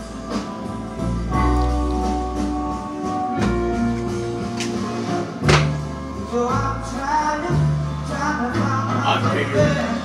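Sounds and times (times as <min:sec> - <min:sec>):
blues music: 0:00.0 - 0:10.0
sharp knock: 0:05.5 - 0:05.8
person singing: 0:06.2 - 0:10.0.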